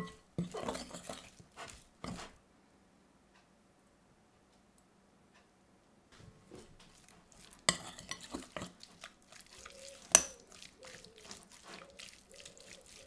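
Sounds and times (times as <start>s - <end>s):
spoon stirring sticky chicken: 0.0s - 2.4s, 6.6s - 13.0s
spoon clinking against glass bowl: 9.6s - 10.6s.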